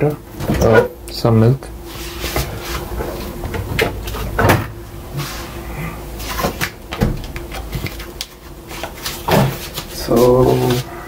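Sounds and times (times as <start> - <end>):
fridge door opening and shutting: 3.0 - 4.8
clunks and knocks: 3.4 - 4.8.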